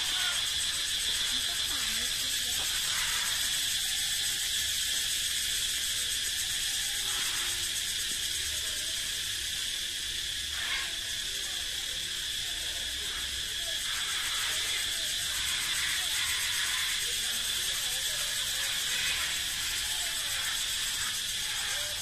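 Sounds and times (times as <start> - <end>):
cicadas buzzing: 0.0 - 22.0.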